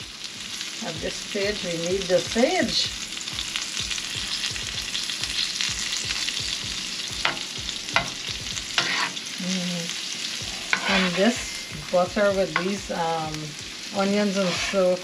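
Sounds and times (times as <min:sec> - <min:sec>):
onions sizzling in butter: 0:00.0 - 0:15.0
utensil scraping a pan: 0:08.8 - 0:09.3, 0:10.4 - 0:12.8, 0:14.0 - 0:15.0.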